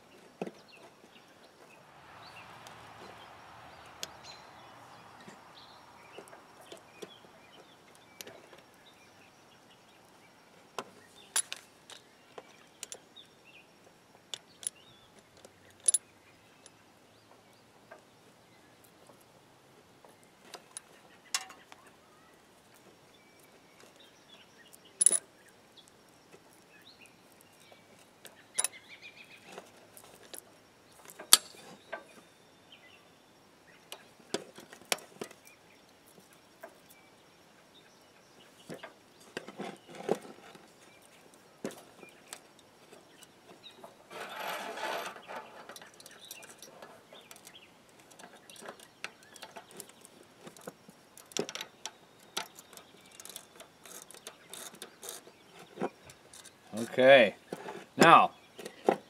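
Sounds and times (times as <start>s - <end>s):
metallic clicks and clinks: 25.0s - 25.3s, 44.2s - 55.2s.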